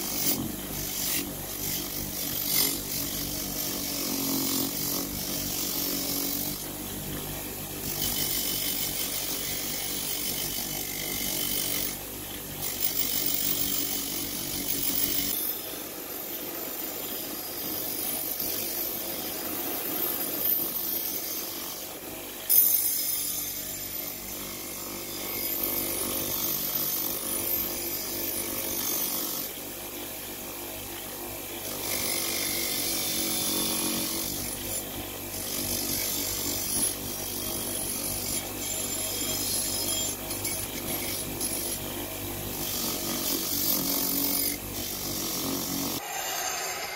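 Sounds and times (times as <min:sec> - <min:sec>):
bench grinder motor hum: 0:00.0 - 0:29.6
blade grinding hiss: 0:46.0 - 0:46.9.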